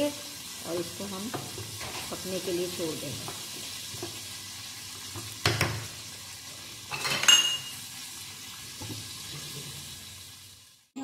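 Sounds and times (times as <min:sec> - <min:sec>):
low sizzle: 0:00.0 - 0:11.0
spoon clanking against pot: 0:06.9 - 0:07.8.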